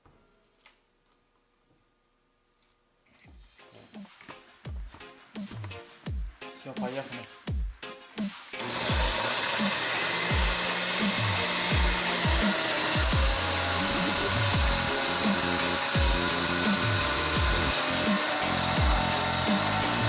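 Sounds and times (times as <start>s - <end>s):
blender motor whining: 8.6s - 20.0s.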